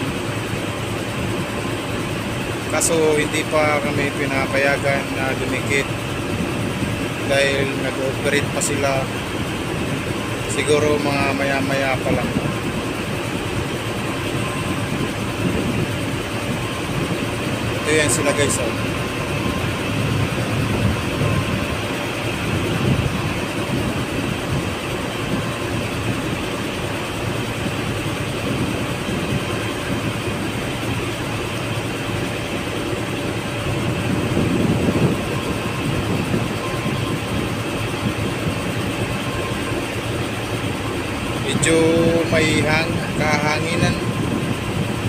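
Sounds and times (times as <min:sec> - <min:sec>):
boat engine running: 0:00.0 - 0:45.0
wind buffeting microphone: 0:00.0 - 0:45.0.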